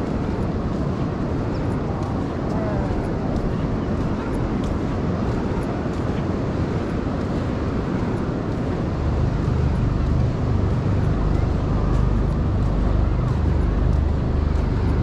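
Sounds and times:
distant surf: 0:00.0 - 0:15.0
low rumble: 0:08.8 - 0:15.0.

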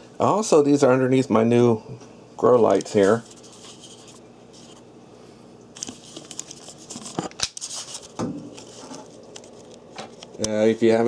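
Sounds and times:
handling rustling and clicks: 0:05.8 - 0:10.6.

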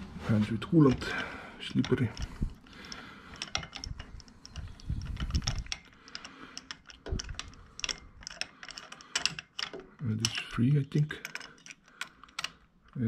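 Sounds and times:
metal socket clicking and clinking: 0:01.7 - 0:10.6, 0:11.2 - 0:13.0.

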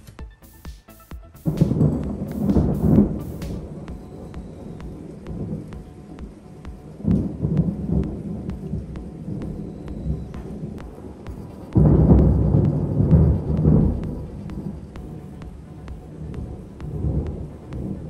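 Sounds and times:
loud thunder peal: 0:01.4 - 0:18.0
thunder rumbling: 0:01.4 - 0:18.0.

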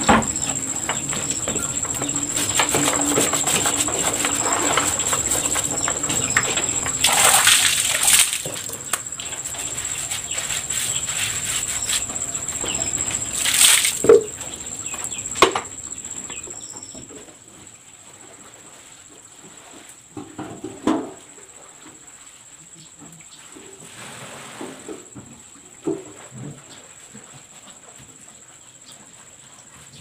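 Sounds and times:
water splashing and dripping: 0:00.0 - 0:14.5
faint high whine: 0:00.0 - 0:17.1
wet cloth scrubbing metal: 0:01.1 - 0:14.3.

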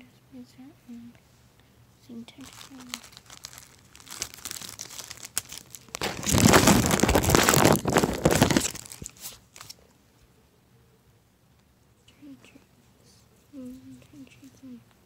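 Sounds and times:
plastic bag crinkling: 0:02.3 - 0:09.8.

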